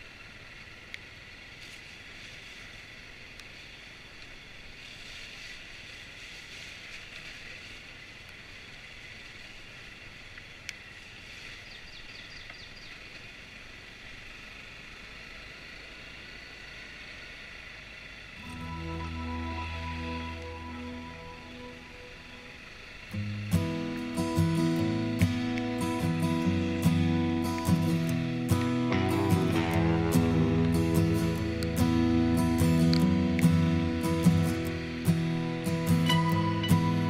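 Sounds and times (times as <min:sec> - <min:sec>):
wind hiss: 0:00.0 - 0:37.0
motorcycle engine running: 0:13.2 - 0:37.0.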